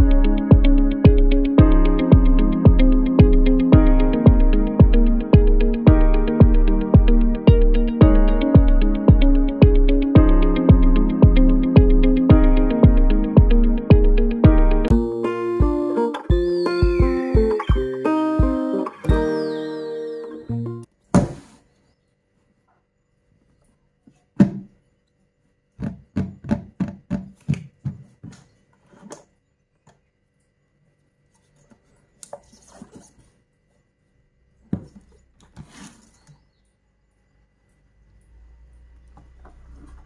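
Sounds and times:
knocks on cardboard box: 21.1s - 21.5s, 24.4s - 24.7s.

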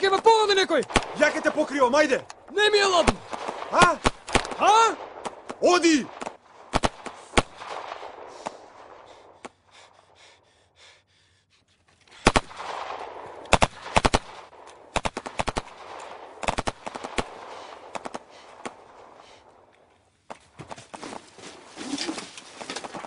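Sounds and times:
rifle fire: 0.7s - 2.1s, 2.7s - 9.4s, 12.2s - 19.2s.

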